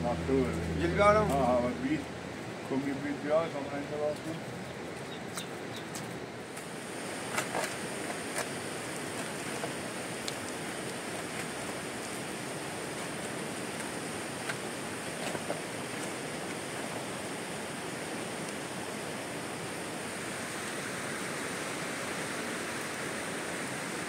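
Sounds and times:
rain falling: 0.0s - 24.0s.

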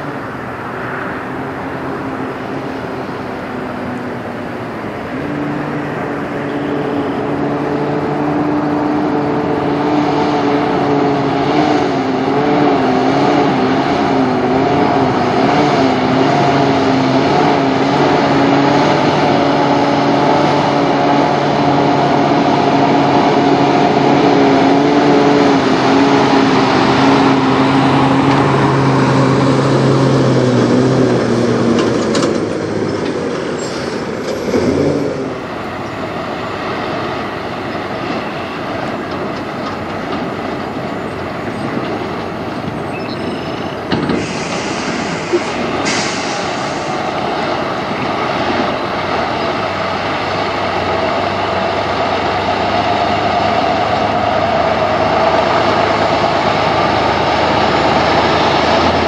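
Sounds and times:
truck engine drone: 0.0s - 59.0s.

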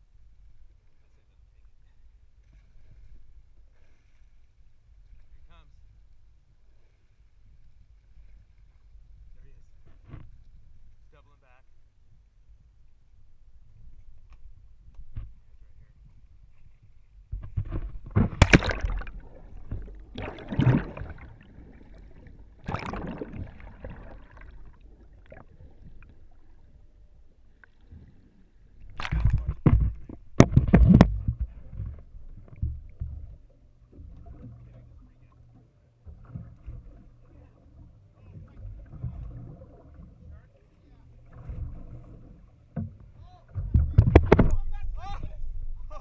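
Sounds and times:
water splashing: 17.4s - 35.5s, 36.1s - 46.0s
underwater gurgling: 17.6s - 35.2s, 36.2s - 40.4s.

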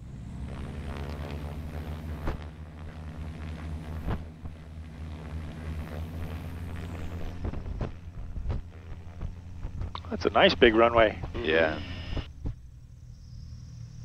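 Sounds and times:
aircraft engines running: 0.0s - 14.0s.

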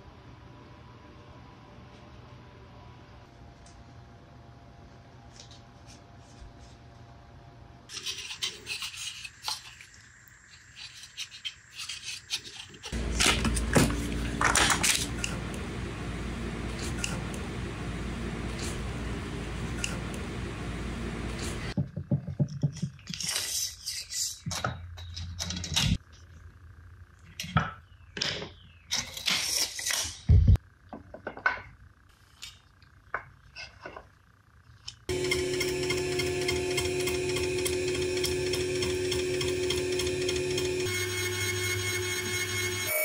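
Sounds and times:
power tool motor running: 12.9s - 21.8s, 35.1s - 43.0s.

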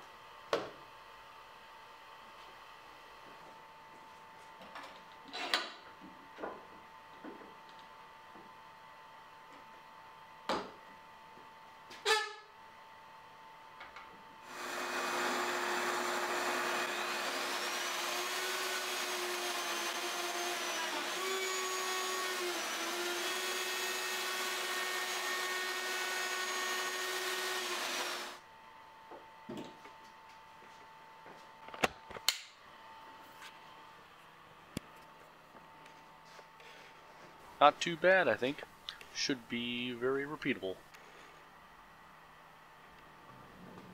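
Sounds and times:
plunge router whining: 14.5s - 28.4s.

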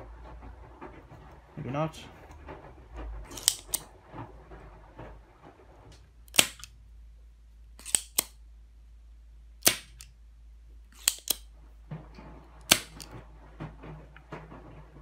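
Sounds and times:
desoldering pump snapping: 3.2s - 3.9s, 6.3s - 6.8s, 7.8s - 8.4s, 9.6s - 10.1s, 10.9s - 11.5s, 12.6s - 13.2s.

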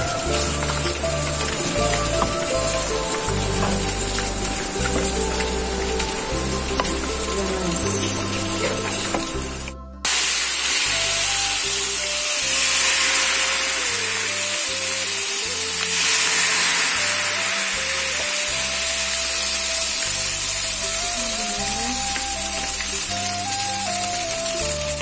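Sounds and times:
background music: 0.0s - 25.0s
batter sizzling in hot oil: 10.1s - 25.0s.

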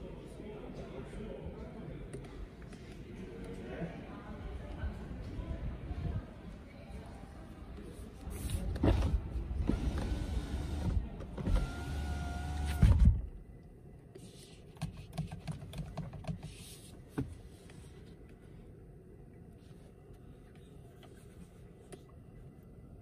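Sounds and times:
power window motor whirring: 9.6s - 13.1s.

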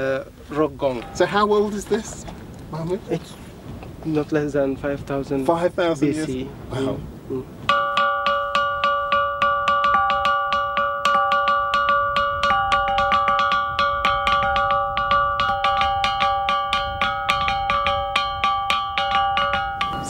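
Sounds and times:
rock gong struck with stone: 7.7s - 20.0s.

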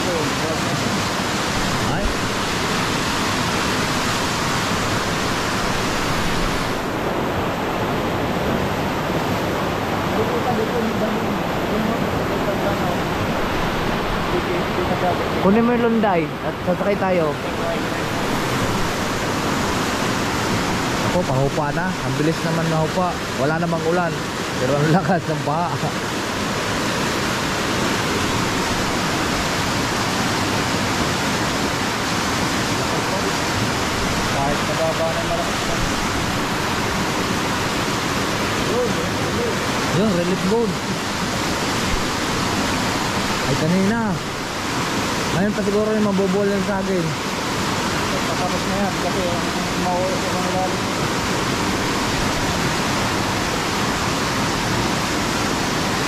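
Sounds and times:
floodwater rushing down creek: 0.0s - 56.0s.

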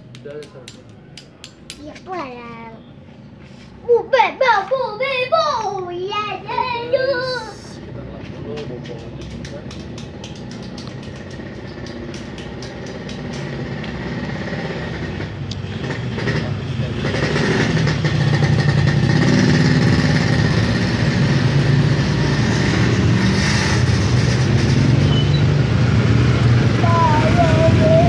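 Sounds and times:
vehicle engine running: 7.6s - 28.0s.

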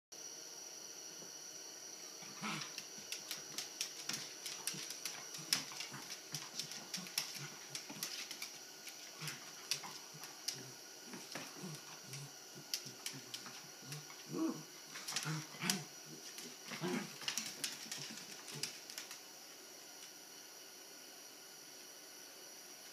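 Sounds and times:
dog vocal noise: 2.2s - 18.8s
dog claws clicking on wood floor: 2.4s - 14.1s, 15.0s - 19.2s.

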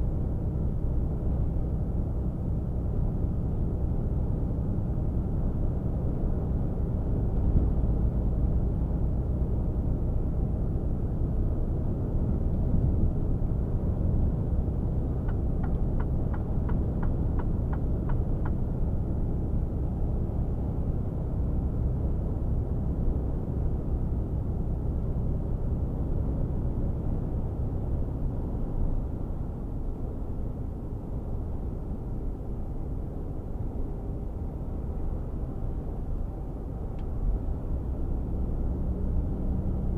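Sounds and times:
road noise: 0.0s - 39.9s
light ticks: 15.2s - 18.6s, 36.9s - 37.1s.

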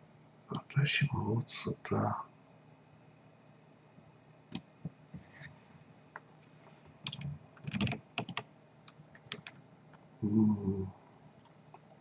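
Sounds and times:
keyboard and mouse clicks: 7.0s - 9.6s.

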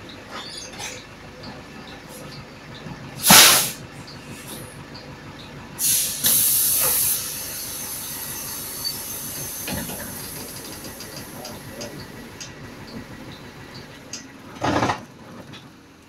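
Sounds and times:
compressed-air hiss: 3.2s - 3.8s, 5.8s - 10.6s.

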